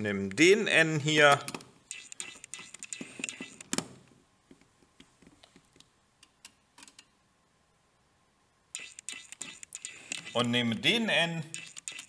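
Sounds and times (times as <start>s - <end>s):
test probes clicking on terminals: 1.5s - 4.0s, 8.7s - 10.5s, 11.5s - 12.0s.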